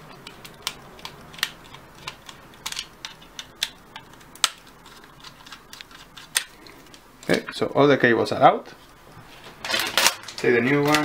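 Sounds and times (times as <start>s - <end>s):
screwdriver clicking and scraping: 0.2s - 7.4s.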